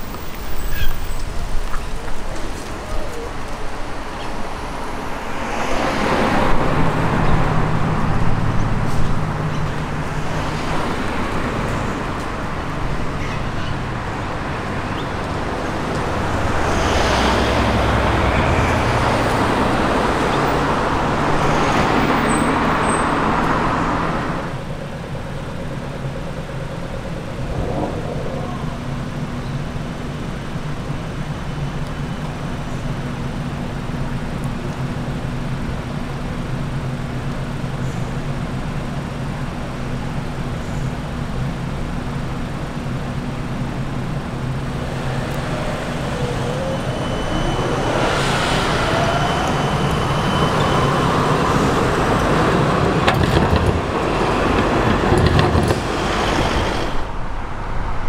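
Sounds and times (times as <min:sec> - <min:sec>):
cars driving past: 0:04.0 - 0:32.5, 0:41.1 - 0:58.0.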